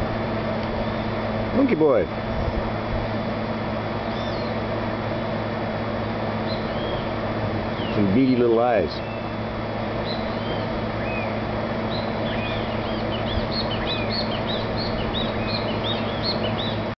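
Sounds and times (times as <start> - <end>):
steady low hum: 0.0 - 17.0
small birds chirping: 4.0 - 4.6, 6.4 - 9.4, 10.0 - 16.9.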